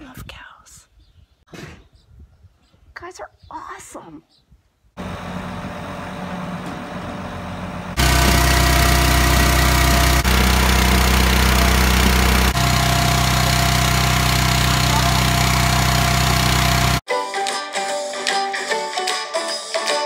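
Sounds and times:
engine running loudly: 5.0 - 17.0.

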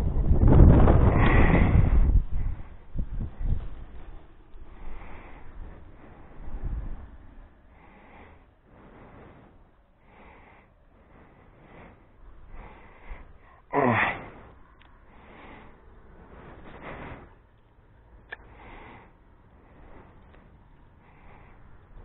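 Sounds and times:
person breathing close: 4.6 - 17.6, 18.2 - 22.0
short vocal burst: 13.6 - 14.5.

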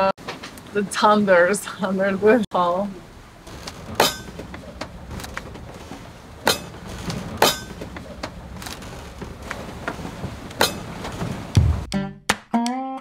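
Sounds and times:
steady low rumble: 2.2 - 11.9.

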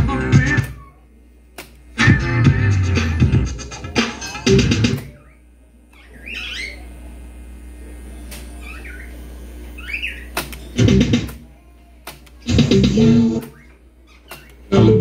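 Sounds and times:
rock music with guitar and drums: 0.0 - 0.7, 2.0 - 5.1.

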